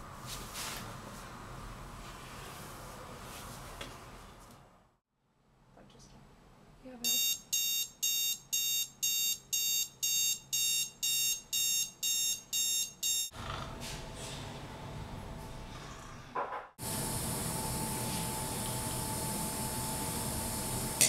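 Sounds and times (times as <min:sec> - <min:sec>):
alarm clock beeping: 0:07.0 - 0:13.4.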